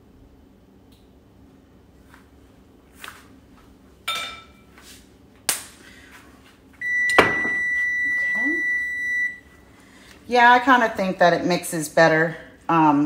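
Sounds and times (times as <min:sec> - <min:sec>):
loud steady electronic beep: 0:06.8 - 0:09.4.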